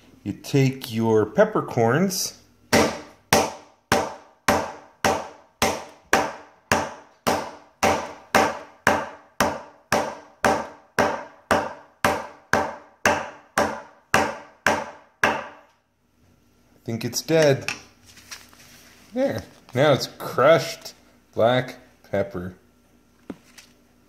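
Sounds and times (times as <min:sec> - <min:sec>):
metal mallet pounding: 0:02.7 - 0:15.6.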